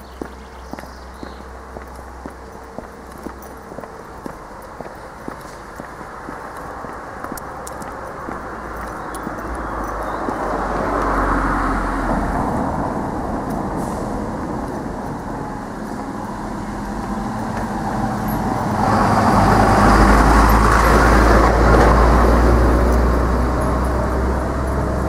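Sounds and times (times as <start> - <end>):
lorry driving past: 0.0 - 25.0
car driving past: 5.3 - 25.0.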